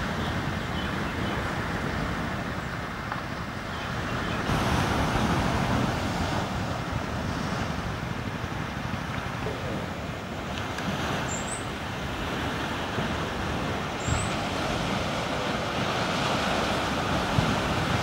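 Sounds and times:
wind rumbling on microphone: 0.0 - 18.0
surf washing onto sand: 4.4 - 18.0.

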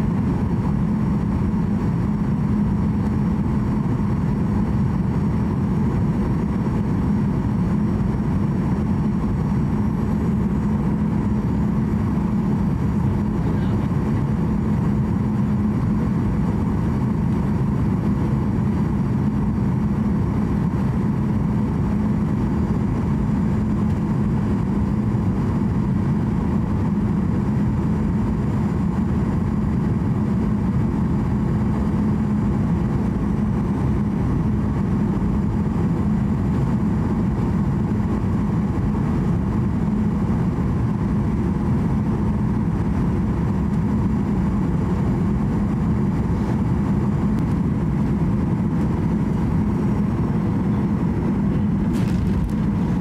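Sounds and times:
airliner engines rumbling: 0.0 - 53.0
rushing air: 44.0 - 53.0.

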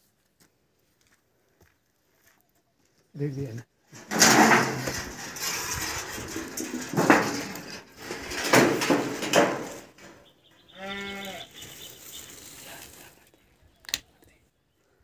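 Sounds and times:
rough rustling: 3.9 - 13.5
goat bleating: 10.6 - 11.6.

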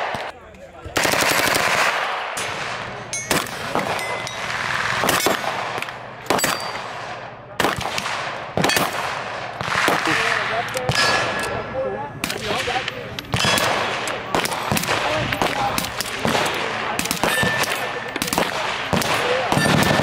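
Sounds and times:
suppressed rifle shots: 12.2 - 20.0.

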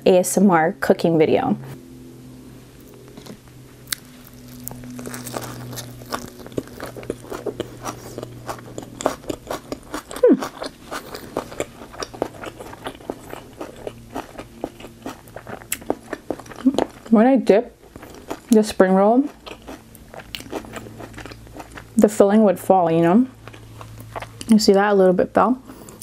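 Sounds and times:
wet crunchy chewing: 2.8 - 17.2, 17.8 - 22.0, 23.3 - 24.5.

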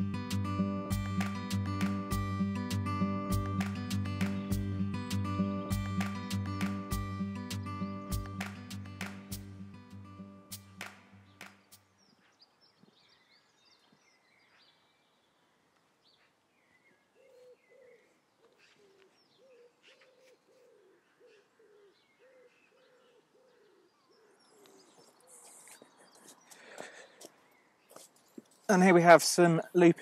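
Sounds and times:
small birds chirping: 10.6 - 28.9
pigeon cooing: 17.2 - 27.3.

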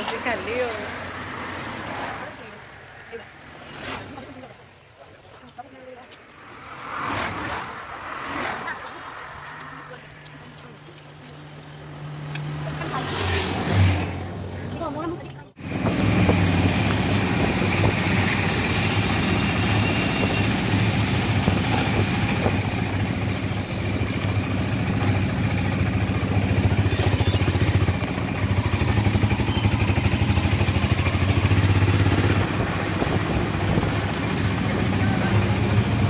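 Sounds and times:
auto-rickshaw engine running: 0.0 - 5.4, 8.8 - 36.0
road and wind noise: 0.0 - 36.0.

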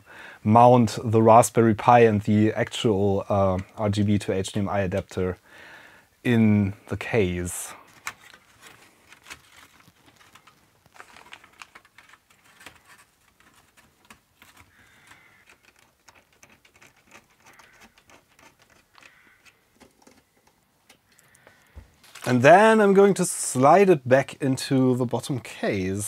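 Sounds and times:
small clicks and metal scraping: 7.8 - 22.4.

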